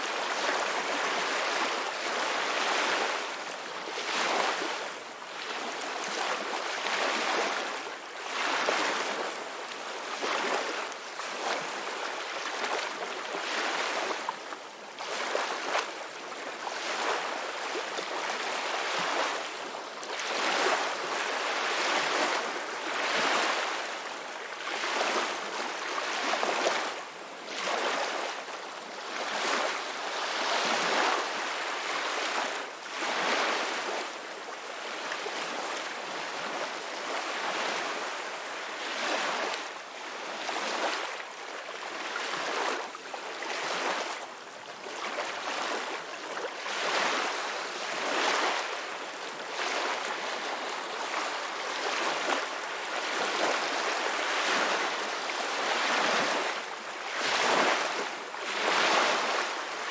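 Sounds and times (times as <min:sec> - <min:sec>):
ocean waves washing onto beach: 0:00.0 - 0:59.9.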